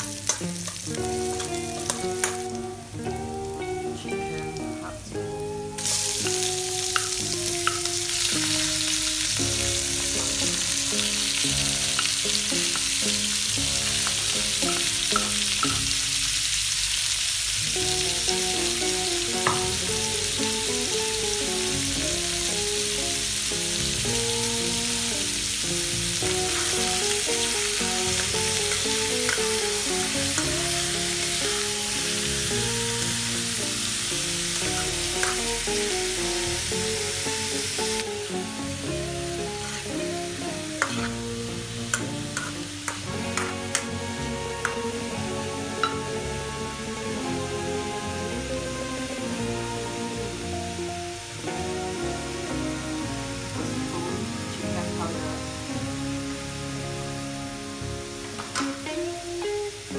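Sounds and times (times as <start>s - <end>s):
metal spoon stirring in pan: 0.0s - 2.6s, 11.8s - 16.1s, 26.2s - 33.4s, 40.8s - 41.3s, 41.9s - 44.0s, 45.7s - 46.2s
background music: 0.0s - 59.9s
food sizzling in a pan: 0.0s - 59.9s.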